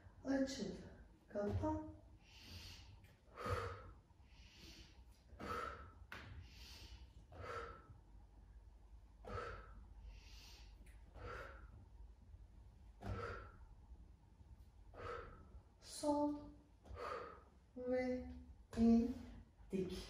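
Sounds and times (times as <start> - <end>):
woman breathing hard: 2.1 - 8.2, 9.2 - 12.0, 13.0 - 14.0, 14.6 - 15.8, 16.8 - 17.7.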